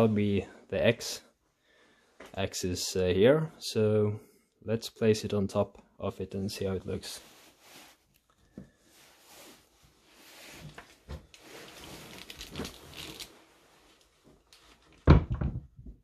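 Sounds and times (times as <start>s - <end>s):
handling noise rustling: 7.0s - 15.6s
loud thump: 15.1s - 15.7s.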